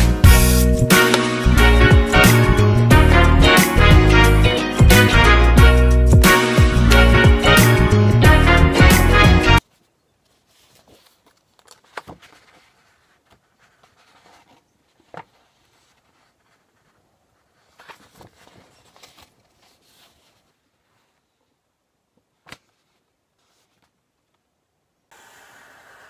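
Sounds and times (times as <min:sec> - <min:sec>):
paper sheets rustling: 0:01.0 - 0:01.4, 0:09.6 - 0:21.3, 0:22.4 - 0:24.0.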